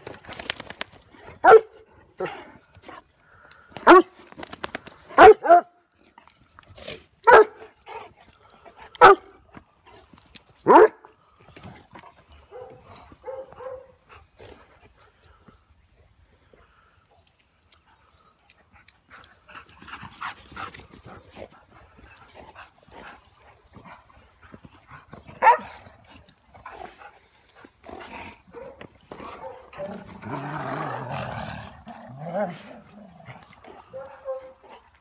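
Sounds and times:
dog barking: 0:01.4 - 0:01.7, 0:05.2 - 0:05.7, 0:07.3 - 0:07.6, 0:09.0 - 0:09.3, 0:10.7 - 0:11.0, 0:25.4 - 0:25.7.

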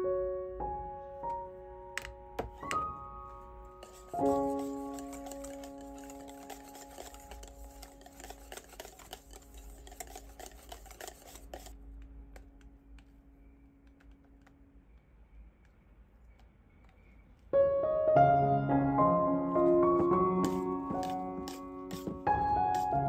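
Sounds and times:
music: 0:00.0 - 0:13.7, 0:17.6 - 0:23.0
whisk beating in a metal bowl: 0:03.8 - 0:11.8, 0:20.4 - 0:23.0.

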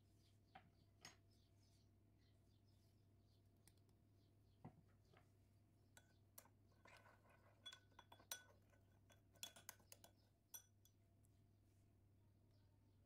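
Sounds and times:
spoon clinking glass bowl: 0:06.0 - 0:11.0.

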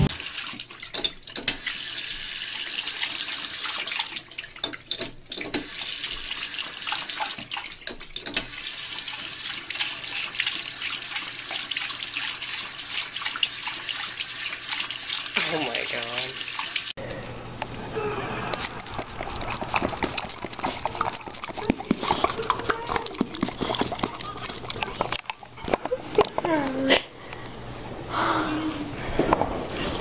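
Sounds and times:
dog drinking from tap: 0:00.0 - 0:17.0, 0:18.6 - 0:25.5
faucet water splashing into basin: 0:00.0 - 0:17.0.

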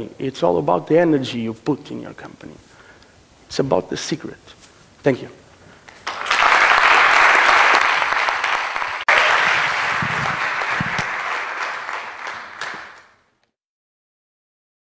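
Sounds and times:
audience applauding: 0:06.0 - 0:13.3.

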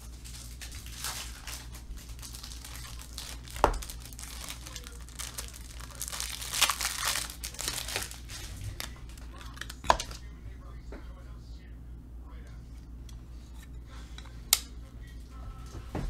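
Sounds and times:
plastic crinkling and rustling: 0:00.0 - 0:10.2.

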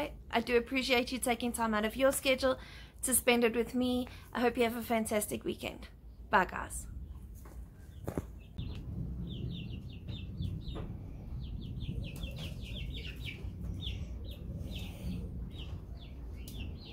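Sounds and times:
birds chirping: 0:07.1 - 0:16.9
low steady rumble: 0:08.5 - 0:16.9.

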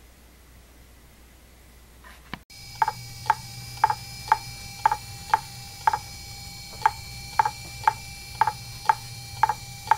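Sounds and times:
faint steady whine: 0:00.0 - 0:09.9
hard drive clicking: 0:02.6 - 0:09.9.

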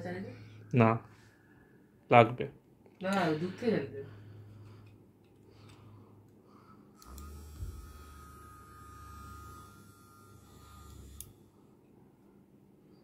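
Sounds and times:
massager buzzing with whine: 0:05.9 - 0:12.4.

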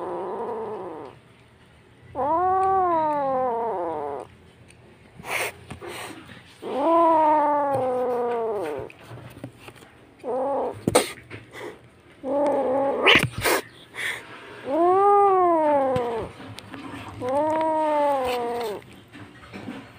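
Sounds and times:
kitten meowing loudly: 0:02.2 - 0:04.3, 0:06.6 - 0:08.9, 0:14.7 - 0:16.3, 0:17.2 - 0:18.8.

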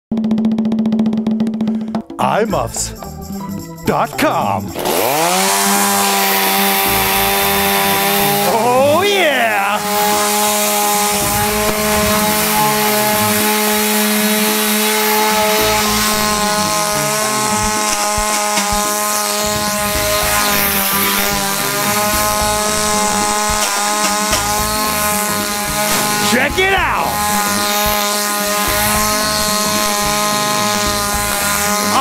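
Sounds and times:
chainsaw engine running: 0:00.1 - 0:32.0.

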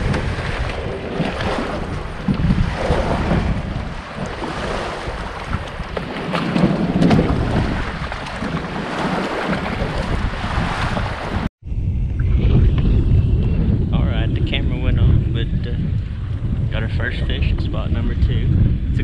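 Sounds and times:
small waves lapping: 0:00.0 - 0:11.5
wind buffeting microphone: 0:00.0 - 0:19.0.

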